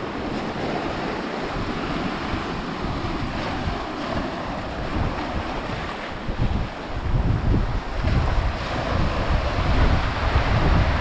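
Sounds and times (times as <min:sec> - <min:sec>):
small waves washing over rock: 0:00.0 - 0:07.0
wind buffeting microphone: 0:00.0 - 0:11.0.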